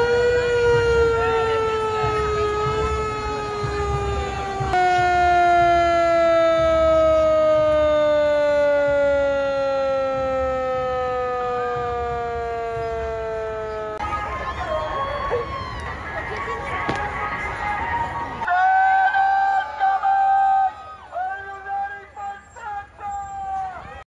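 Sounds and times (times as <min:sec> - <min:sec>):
mechanical siren winding down: 0:00.0 - 0:14.0.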